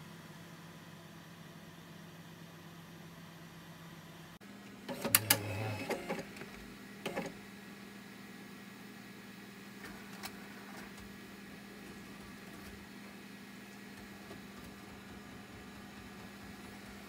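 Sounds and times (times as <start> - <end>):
machine low hum: 0.0 - 17.0
motor whir: 4.9 - 6.5.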